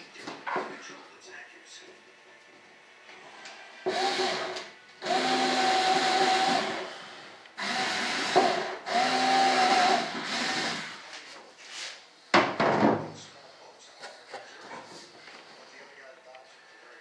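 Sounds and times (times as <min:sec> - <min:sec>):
power drill whining: 0:03.9 - 0:11.1.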